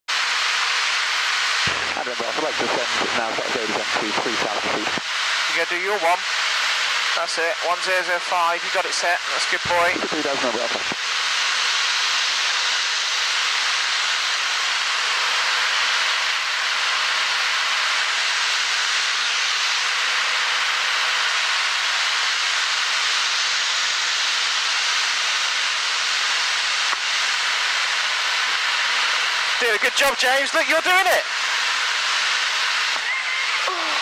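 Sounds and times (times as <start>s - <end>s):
aircraft engine and propeller: 0.1s - 34.0s.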